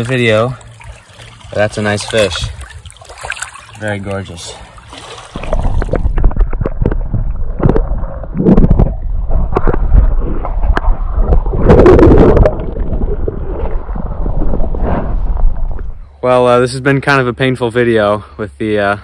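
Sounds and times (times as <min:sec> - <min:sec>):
water surge: 0:00.0 - 0:16.0
underwater gurgling and sloshing: 0:00.0 - 0:16.2
underwater knocks: 0:05.3 - 0:13.1.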